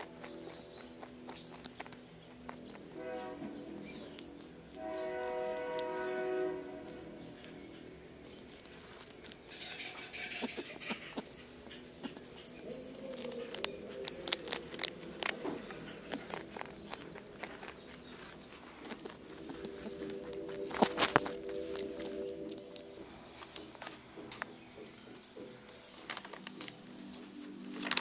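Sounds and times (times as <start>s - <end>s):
rabbit happy noise: 0.0s - 4.8s, 5.5s - 24.1s
rabbit crunching food: 0.0s - 28.0s
small bells jingling: 3.8s - 4.8s, 8.4s - 23.6s, 24.8s - 28.0s.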